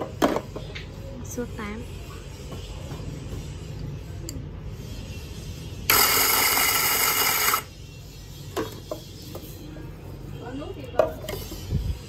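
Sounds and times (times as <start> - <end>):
electric coffee grinder running: 5.9 - 7.7.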